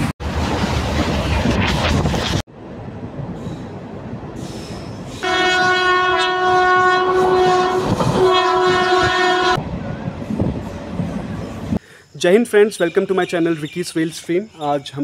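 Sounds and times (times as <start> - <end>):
moving train rumble: 0.0 - 15.0
locomotive air horn blast: 5.2 - 9.6.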